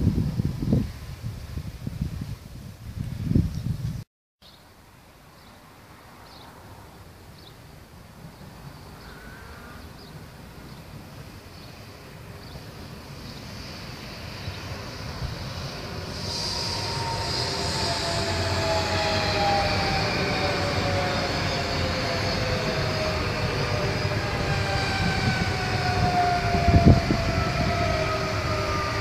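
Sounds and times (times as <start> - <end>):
train wheels rumbling on rail: 12.2 - 29.0
train whine falling in pitch: 15.7 - 29.0.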